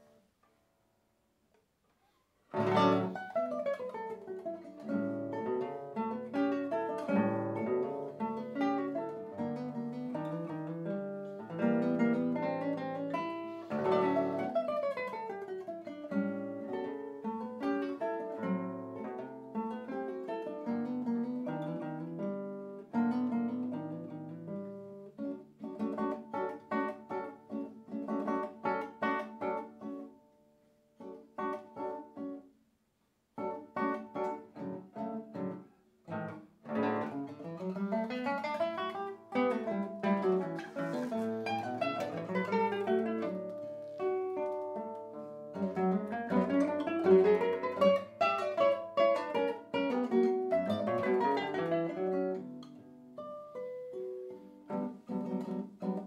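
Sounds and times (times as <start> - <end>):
classical guitar duet: 0.0 - 56.0.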